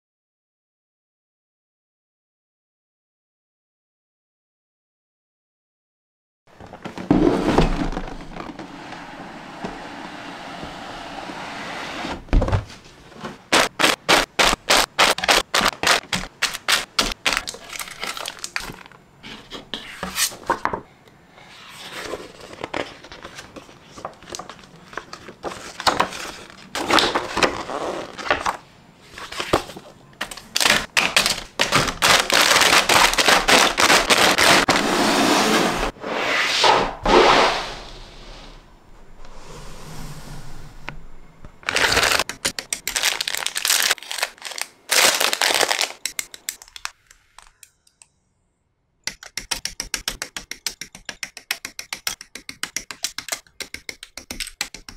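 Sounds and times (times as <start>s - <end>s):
cardboard scraping and rubbing: 6.6s - 17.2s, 32.0s - 37.8s
paper and plastic bags rustling: 13.3s - 19.0s, 29.3s - 34.8s, 41.6s - 47.0s.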